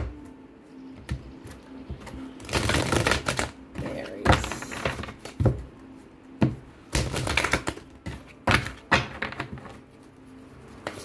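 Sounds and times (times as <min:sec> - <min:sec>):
cards tapping and clacking: 0:01.0 - 0:05.7, 0:06.4 - 0:09.9.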